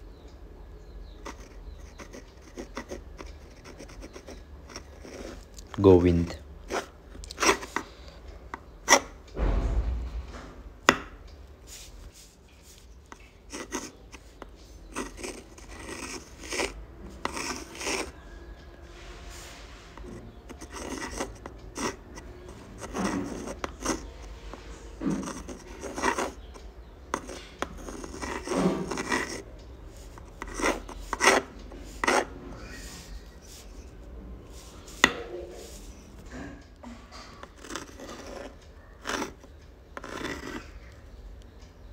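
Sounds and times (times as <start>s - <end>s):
pen scratching on paper: 1.1s - 5.5s, 6.6s - 7.9s, 8.9s - 9.2s, 11.7s - 18.2s, 20.0s - 24.2s, 25.0s - 36.2s, 37.4s - 40.7s.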